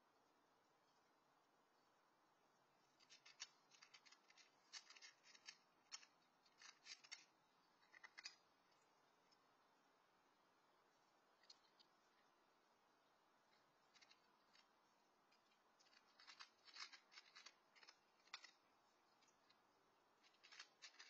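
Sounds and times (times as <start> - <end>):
cat crunching dry food: 3.0 - 8.5, 15.3 - 19.5, 20.2 - 21.0.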